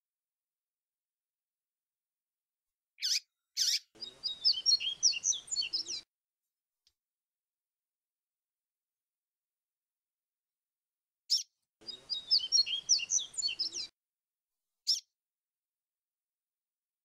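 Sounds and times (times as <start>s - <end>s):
high whistled bird notes: 3.0s - 6.0s, 11.3s - 13.9s
bird chirp: 3.0s - 6.1s, 11.3s - 13.9s, 14.8s - 15.1s.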